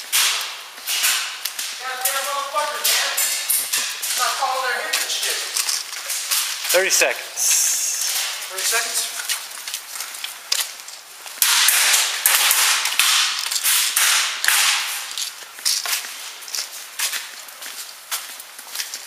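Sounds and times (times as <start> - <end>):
sharp clicks and knocks: 11.4 - 16.0.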